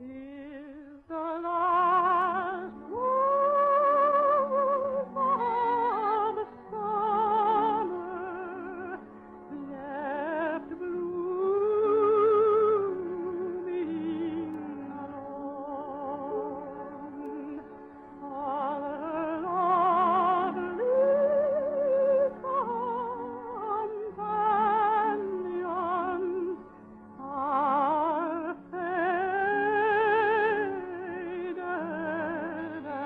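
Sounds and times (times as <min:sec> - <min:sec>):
operatic singing with vibrato: 0:18.2 - 0:26.6.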